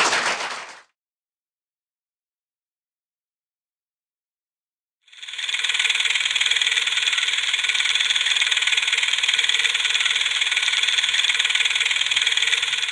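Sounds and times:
film projector clattering: 0:05.1 - 0:12.9.

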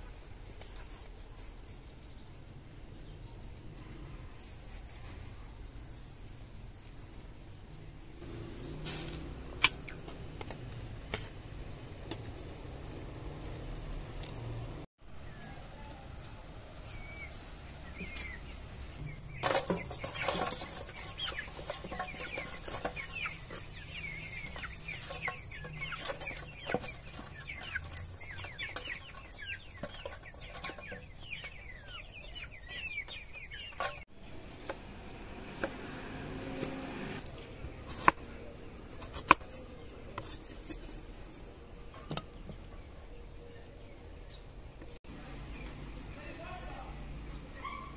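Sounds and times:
hens clucking: 0:15.2 - 0:35.8.

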